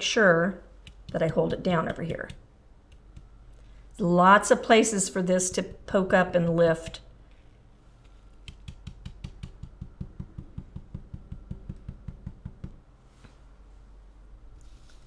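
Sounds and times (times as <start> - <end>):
stencil brush tapping on door mat: 0.8 - 3.4, 8.4 - 12.8.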